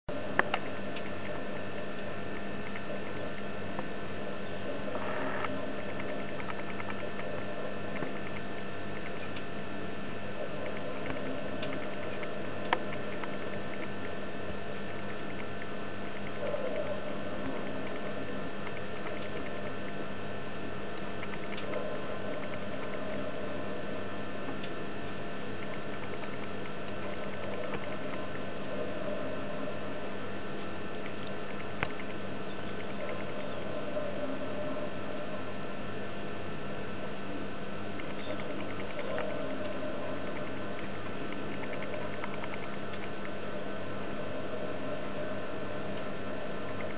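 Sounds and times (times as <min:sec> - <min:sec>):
steady hum: 0:00.0 - 0:46.9
woodpecker pecking: 0:17.6 - 0:19.8, 0:38.0 - 0:43.4
woodpecker pecking at feeder: 0:40.2 - 0:43.4.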